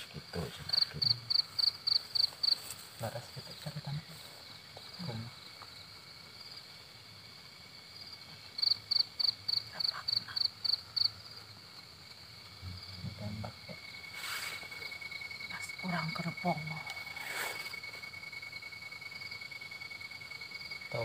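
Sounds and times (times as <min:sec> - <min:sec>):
crickets chirping: 0:00.0 - 0:21.0
faint steady high tone: 0:20.8 - 0:21.0.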